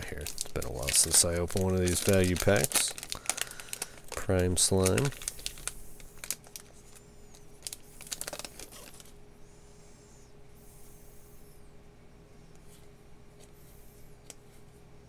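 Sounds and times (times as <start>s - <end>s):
wrapper tearing and crinkling: 0.0s - 7.0s, 7.6s - 9.1s
cards rustling: 0.0s - 9.2s.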